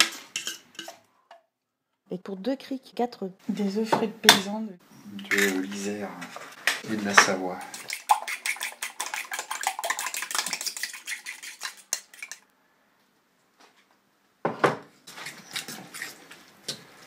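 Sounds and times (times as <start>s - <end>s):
utensil scraping ceramic dish: 0.0s - 1.0s, 7.7s - 12.4s
eggs beaten in bowl: 0.0s - 1.1s, 6.8s - 12.4s.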